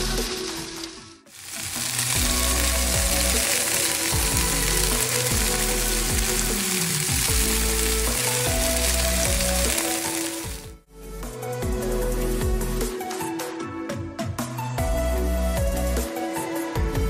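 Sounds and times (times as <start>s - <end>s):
background music with deep bass: 0.0s - 17.0s
sausages sizzling in a frying pan: 1.3s - 10.8s.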